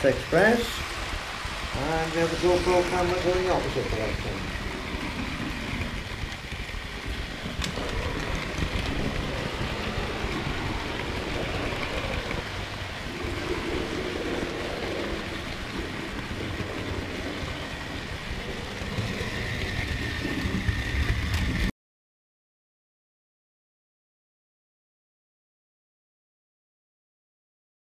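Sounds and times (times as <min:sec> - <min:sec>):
model train wheels rumbling on rails: 0:00.0 - 0:21.7.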